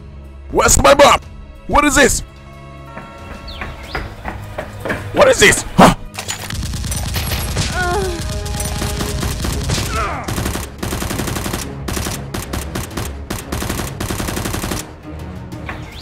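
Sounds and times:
background music: 0:00.0 - 0:16.0
automatic gunfire sound effects: 0:06.5 - 0:14.9.

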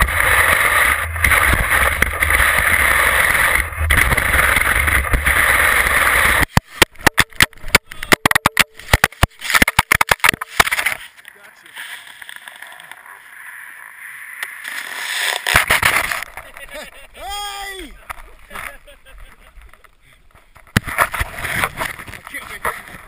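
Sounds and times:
camera tumbling across snow: 0:00.0 - 0:07.8, 0:08.8 - 0:17.0, 0:20.6 - 0:23.0
ski hissing over snow: 0:04.2 - 0:06.5.

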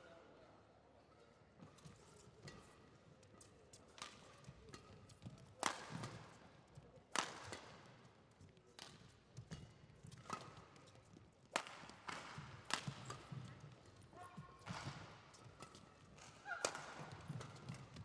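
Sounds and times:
rackets striking shuttlecock: 0:04.0 - 0:06.3, 0:07.1 - 0:08.0, 0:08.8 - 0:18.0.

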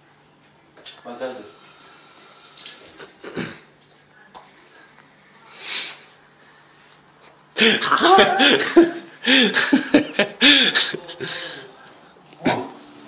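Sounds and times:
person laughing loudly: 0:07.6 - 0:11.5.

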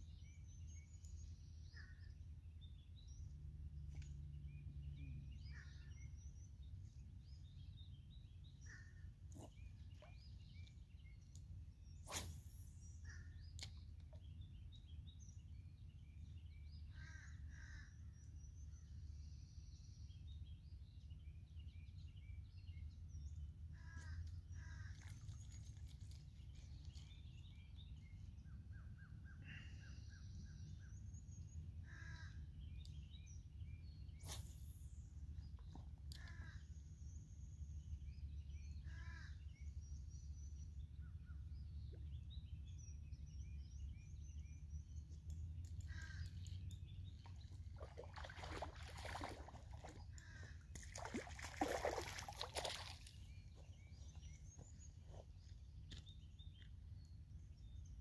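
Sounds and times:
small birds chirping: 0:00.0 - 0:58.0
low bird calls: 0:31.8 - 0:44.7, 0:45.6 - 0:57.1.

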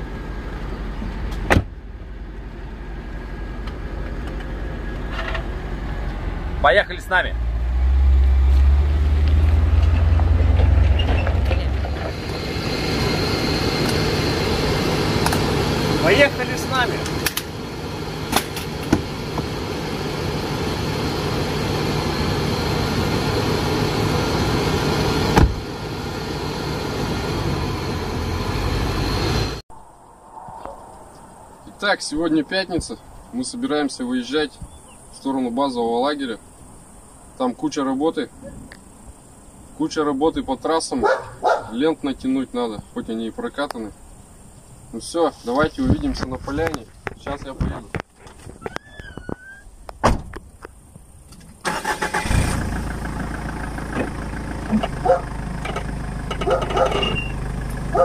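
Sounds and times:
vehicle engine running: 0:00.0 - 0:29.6, 0:51.7 - 0:58.0
road noise: 0:00.0 - 0:58.0
car door slamming: 0:01.3 - 0:01.8, 0:25.3 - 0:25.6, 0:50.0 - 0:50.4.

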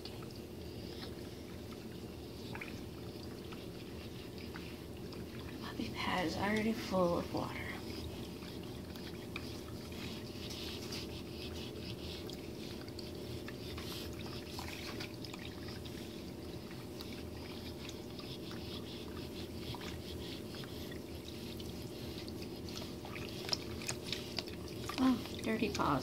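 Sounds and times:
cats lapping and splashing water: 0:00.0 - 0:26.0
water fountain trickling: 0:22.0 - 0:26.0.

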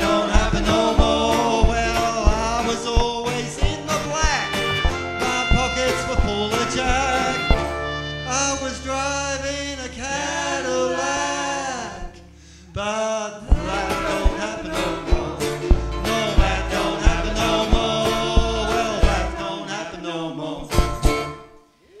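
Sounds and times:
voices singing in harmony: 0:00.0 - 0:04.5, 0:09.8 - 0:20.8
double bass: 0:00.0 - 0:21.6
acoustic guitar: 0:00.0 - 0:22.0.

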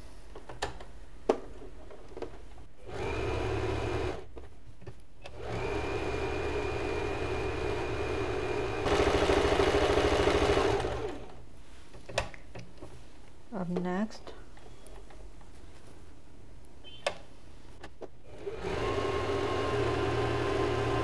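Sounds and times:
sewing machine stitching: 0:02.8 - 0:04.2, 0:05.3 - 0:11.4, 0:18.2 - 0:21.0.

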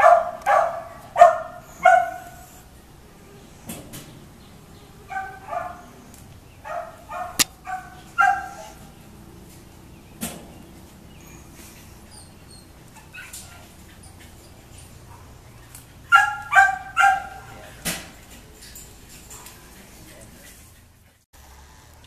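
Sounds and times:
dog barking: 0:00.0 - 0:02.5, 0:05.1 - 0:06.0, 0:06.6 - 0:08.8, 0:15.0 - 0:15.4, 0:16.1 - 0:17.6.

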